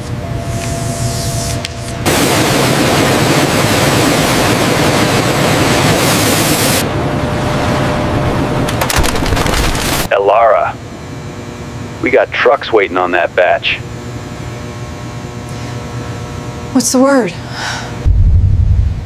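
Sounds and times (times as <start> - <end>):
paper machine roaring: 8.6 - 10.1
sharp cracks and crashes: 8.7 - 10.1.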